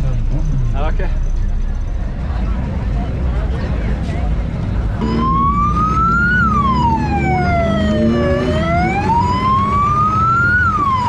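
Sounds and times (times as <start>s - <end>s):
low rumble: 0.0s - 5.0s
wailing electronic siren: 5.0s - 11.0s.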